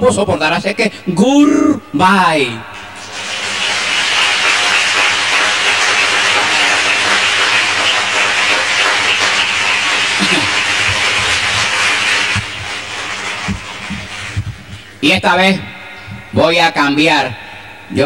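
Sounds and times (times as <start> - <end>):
audience applauding: 3.0 - 14.4.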